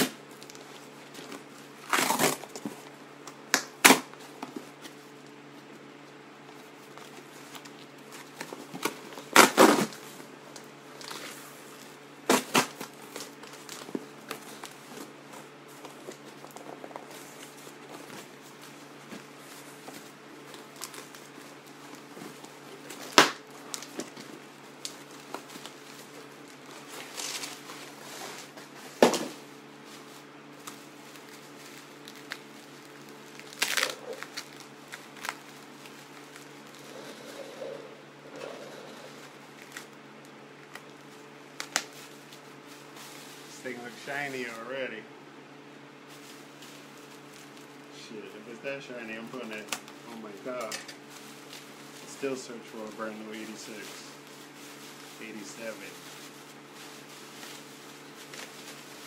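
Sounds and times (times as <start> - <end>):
cardboard box tape ripping: 1.8 - 2.6, 3.5 - 4.1, 8.7 - 10.0, 12.2 - 14.7, 22.9 - 24.2, 33.3 - 35.4
packaging crinkling: 6.5 - 28.6, 29.8 - 37.7, 49.4 - 59.0.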